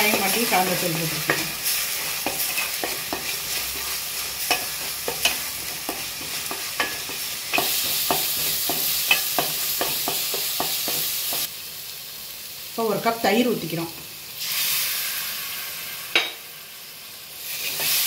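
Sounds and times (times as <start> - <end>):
spatula scraping a pan: 0.0 - 11.5, 17.5 - 18.0
masala sizzling in oil: 0.0 - 18.0.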